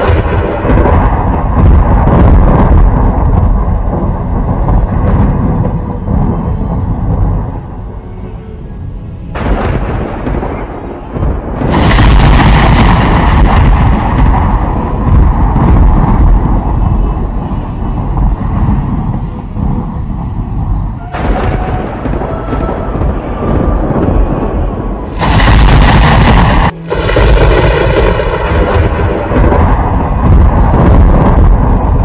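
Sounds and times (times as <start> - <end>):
rolling thunder: 0.0 - 32.0.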